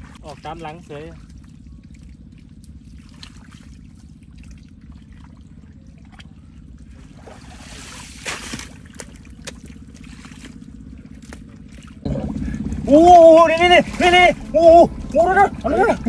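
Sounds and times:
muddy water sloshing: 0.0 - 16.0
steady low hum: 0.0 - 16.0
splashy scrape of mud: 6.9 - 12.8.

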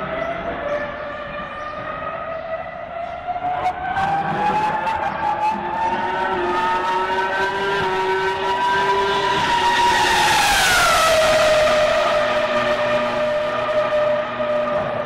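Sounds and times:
racing car engine: 0.0 - 15.0.

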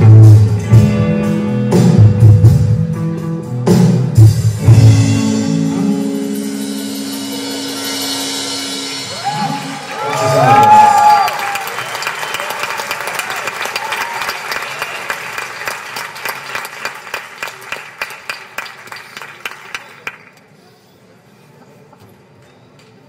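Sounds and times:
faint hall background: 0.0 - 23.0
audience whooping: 9.0 - 16.6
audience applauding: 9.1 - 20.5.

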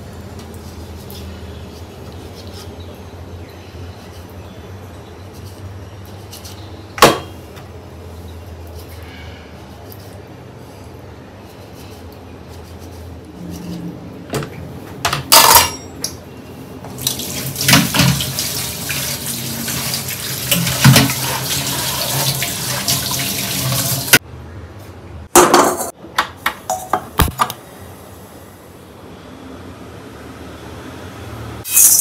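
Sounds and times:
dishes and utensils clattering: 15.1 - 16.2, 20.5 - 21.2, 25.4 - 26.0
tap running into sink: 16.9 - 18.6, 19.8 - 24.1.

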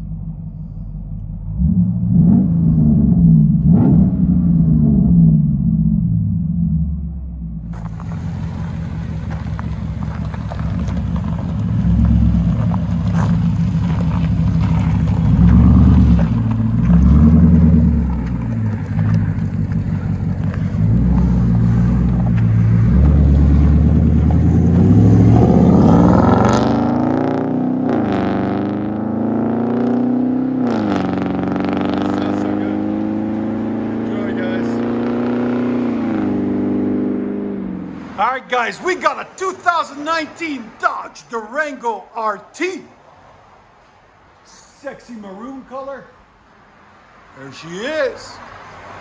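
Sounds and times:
vee eight engine rumbling: 0.0 - 43.0
engine accelerating hard: 1.2 - 38.2.

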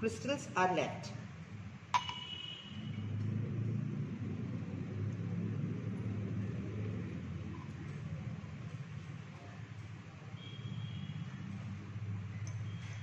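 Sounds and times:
steady low rumble: 2.8 - 10.1.

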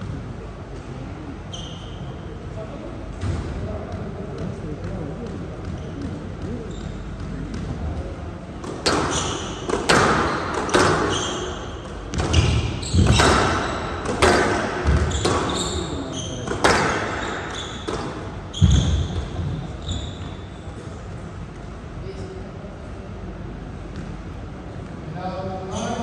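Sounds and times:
shoes squeaking on floor: 1.5 - 2.2, 5.6 - 7.6, 8.8 - 20.8
squash ball cracking off walls: 8.6 - 15.6, 16.4 - 19.2.

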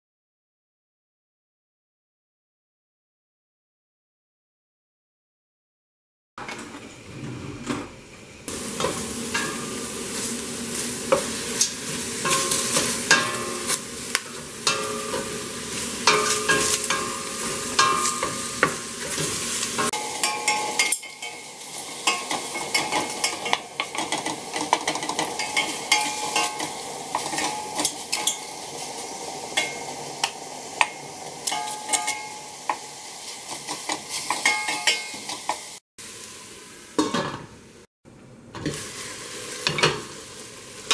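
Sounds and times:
meat sizzling in hot oil: 8.5 - 37.8, 38.6 - 40.9
wooden spoon scraping a pot: 22.0 - 28.4.

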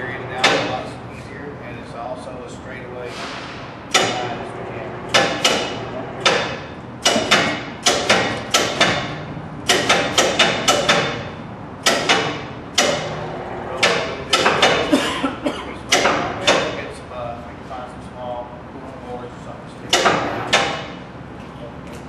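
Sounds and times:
hammer striking steel: 3.1 - 4.4, 5.1 - 15.0, 15.9 - 16.8, 19.9 - 21.0.

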